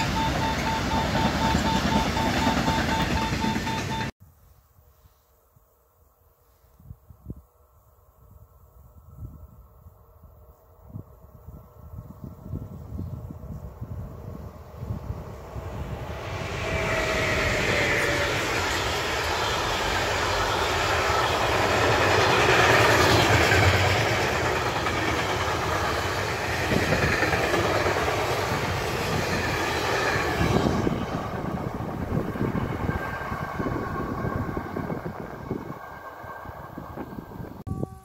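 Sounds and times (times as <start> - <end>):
freight train wheels on rails: 0.0 - 4.2, 11.8 - 38.0.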